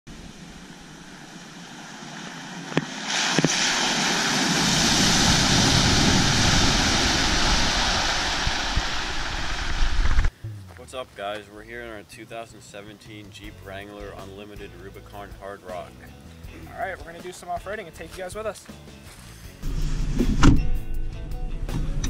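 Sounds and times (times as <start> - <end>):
water splashing and spraying: 0.1 - 10.3.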